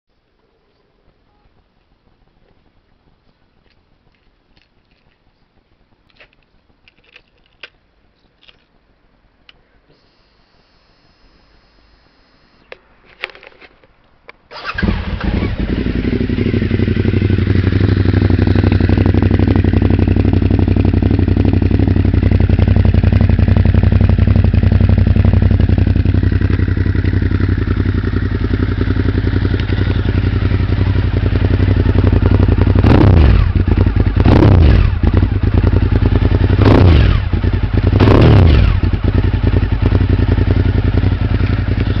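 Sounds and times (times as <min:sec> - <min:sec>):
motorcycle engine revving: 0:14.5 - 0:42.0
motorcycle engine idling: 0:14.6 - 0:42.0.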